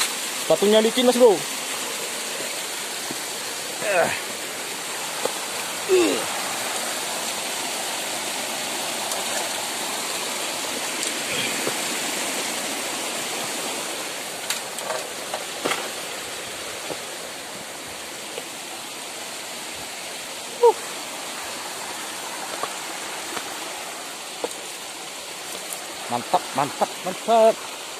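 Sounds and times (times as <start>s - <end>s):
stream rushing over rocks: 0.0s - 27.9s.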